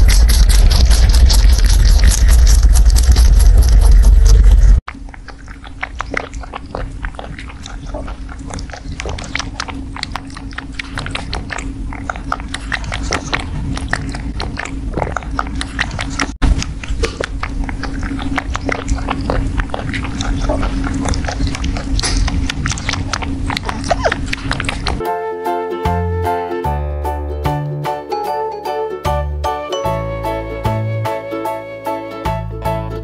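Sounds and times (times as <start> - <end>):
loud low rumble: 0.0 - 4.8
rabbit chewing food: 0.0 - 25.0.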